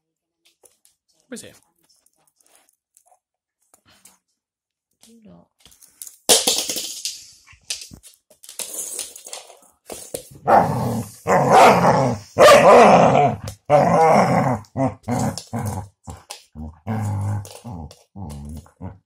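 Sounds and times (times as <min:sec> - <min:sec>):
dog play barks and growls: 0:10.3 - 0:19.0.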